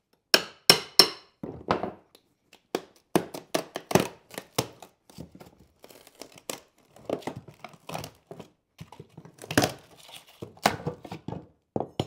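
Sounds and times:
floorboard cracking and creaking: 0:03.3 - 0:12.0.

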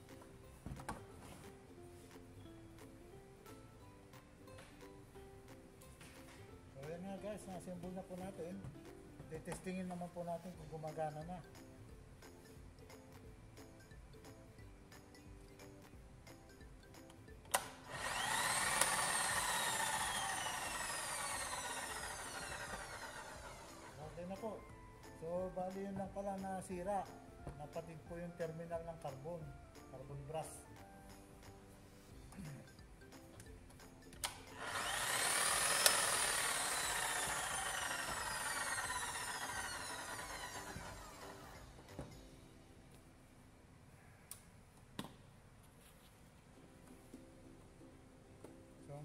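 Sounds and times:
electric motor whining: 0:17.8 - 0:24.1, 0:34.5 - 0:41.9.

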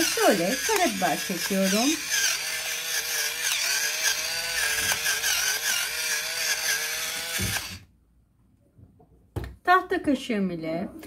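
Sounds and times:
electric pepper mill grinding: 0:00.0 - 0:07.9.

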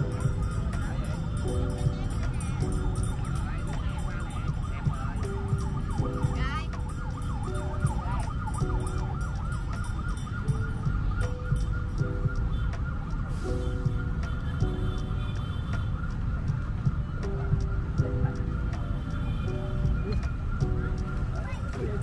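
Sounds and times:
electronic siren warbling: 0:00.0 - 0:14.5
city traffic rumble: 0:00.0 - 0:22.0
low electronic notes: 0:00.0 - 0:22.0.

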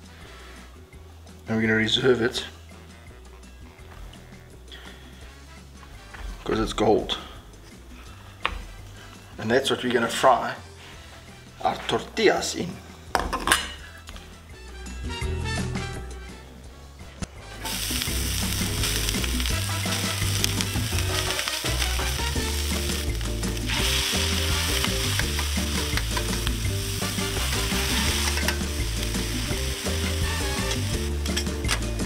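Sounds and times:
beef sizzling in a pan: 0:17.6 - 0:31.7
metal tongs stirring: 0:24.0 - 0:29.4.

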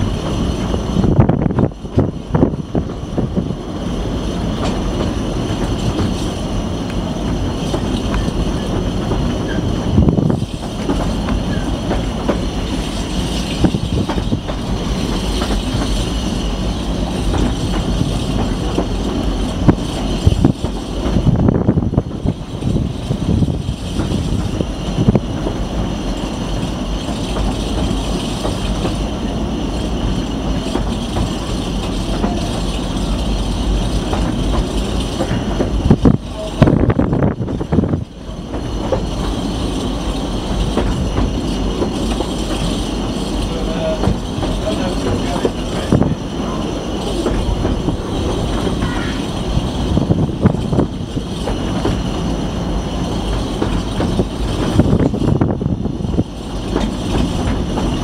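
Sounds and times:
rumble of wheels on rail: 0:00.0 - 0:58.0
high wheel squeal: 0:07.5 - 0:10.6, 0:11.3 - 0:17.2, 0:38.0 - 0:54.3.

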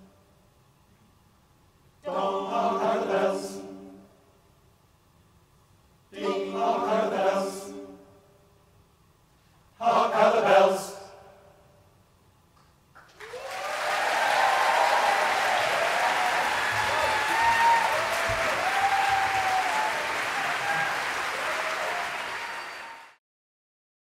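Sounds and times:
audience clapping: 0:12.9 - 0:23.2
whoops and shouts: 0:13.2 - 0:23.1.

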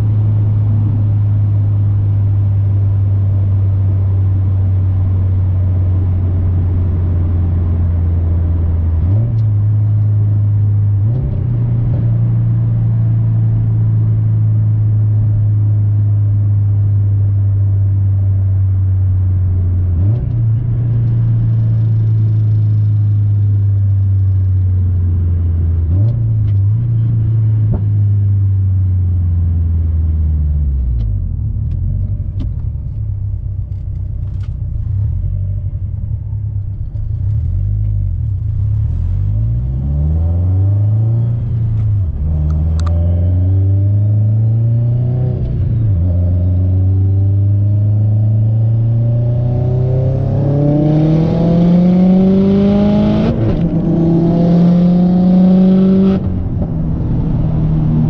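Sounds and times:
car engine revving through gears: 0:30.6 - 0:58.0.

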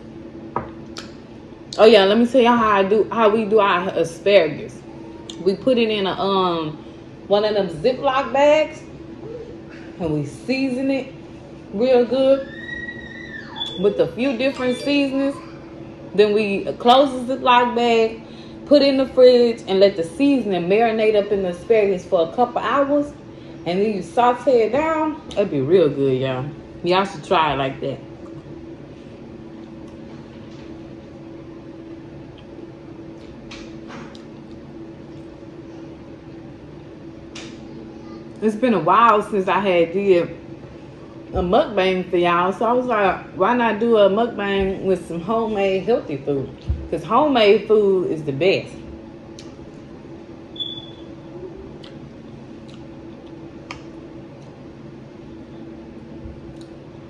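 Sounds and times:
low appliance hum: 0:00.0 - 0:57.0
eating noises: 0:51.4 - 0:54.6
chewing: 0:51.8 - 0:52.0, 0:52.6 - 0:53.8.

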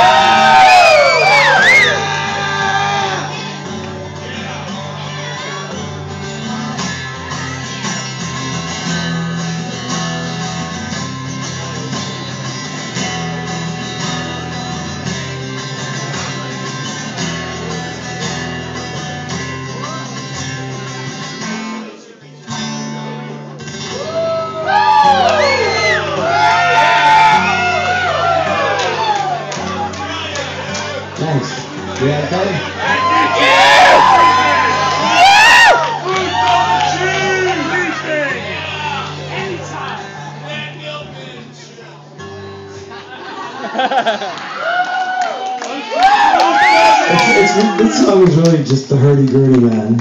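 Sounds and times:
voices whooping and shouting: 0:00.0 - 0:03.3, 0:23.9 - 0:30.4, 0:32.7 - 0:40.0, 0:44.2 - 0:48.3
acoustic guitar playing: 0:00.0 - 0:44.4.

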